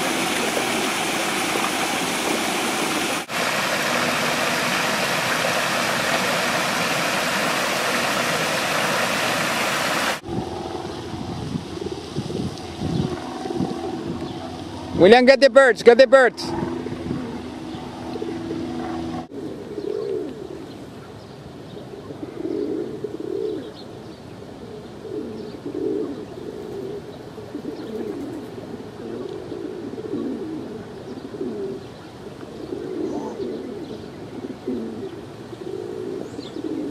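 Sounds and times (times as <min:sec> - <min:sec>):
pigeons cooing: 0:00.0 - 0:15.2, 0:16.5 - 0:36.9
steady hum: 0:00.0 - 0:19.4.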